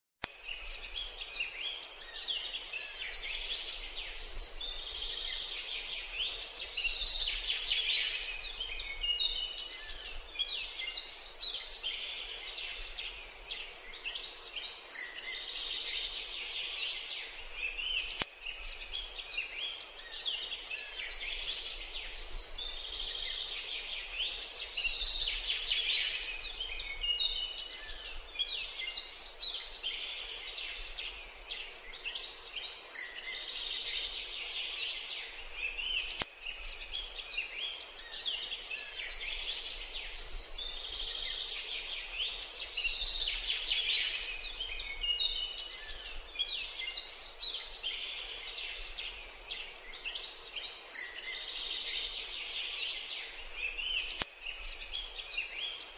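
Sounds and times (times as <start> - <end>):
sharp click: 18.1 - 18.4, 36.1 - 36.4, 54.1 - 54.4.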